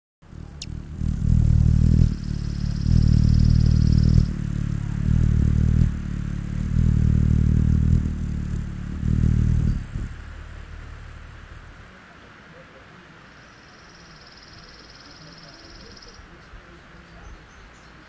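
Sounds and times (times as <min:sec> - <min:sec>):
hummingbird wings humming: 0:00.2 - 0:11.9.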